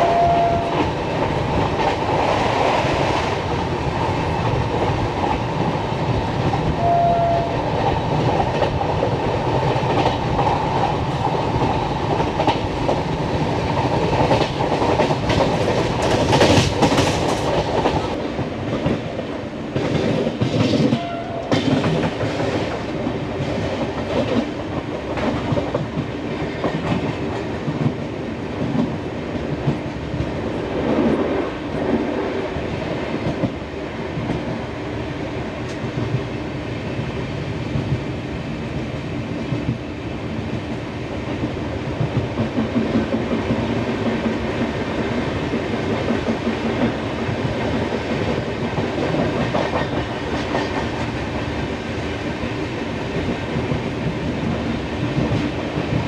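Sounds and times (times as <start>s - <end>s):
train horn: 0.0s - 1.0s, 6.8s - 7.8s, 20.9s - 21.8s
train wheels clattering over joints: 11.2s - 18.2s.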